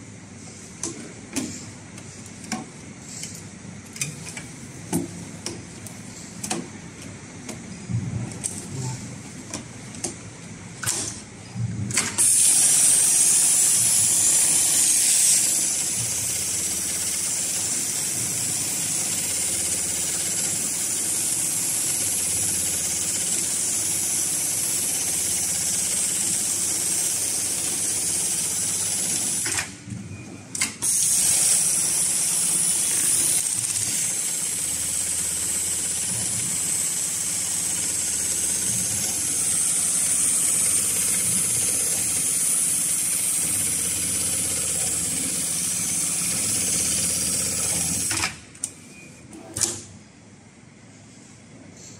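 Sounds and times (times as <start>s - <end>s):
sewing machine running: 12.1s - 29.7s, 30.8s - 48.3s.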